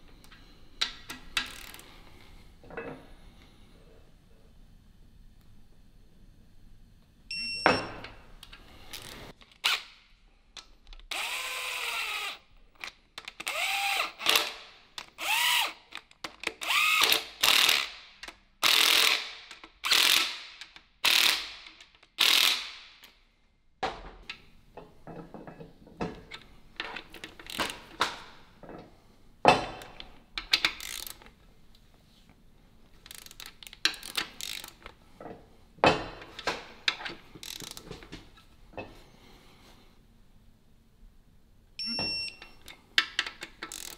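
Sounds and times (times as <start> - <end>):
ratchet wrench clicking: 0.8 - 1.8, 13.2 - 22.8, 30.4 - 31.3, 33.0 - 34.9, 37.4 - 37.8, 43.0 - 43.9.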